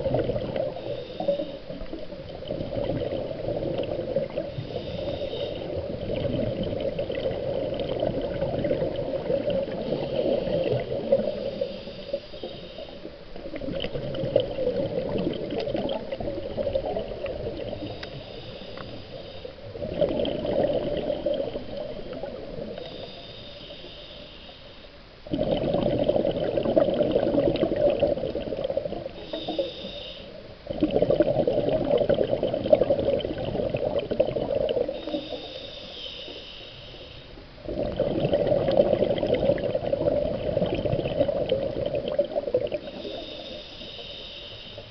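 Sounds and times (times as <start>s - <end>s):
muffled underwater sloshing: 0.0s - 44.9s
faint high whine: 7.7s - 14.7s, 16.2s - 25.4s, 33.7s - 37.7s.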